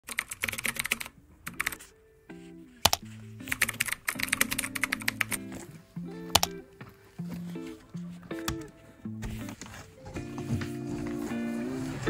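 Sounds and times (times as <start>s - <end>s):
background music: 0.4s - 12.0s
keyboard key clicks: 2.9s - 5.4s, 6.3s - 6.6s.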